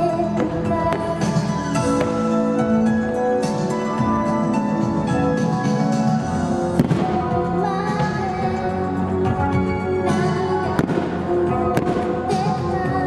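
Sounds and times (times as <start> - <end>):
anime song music: 0.0 - 13.0
fireworks bangs and crackle: 6.7 - 8.4, 10.1 - 12.8.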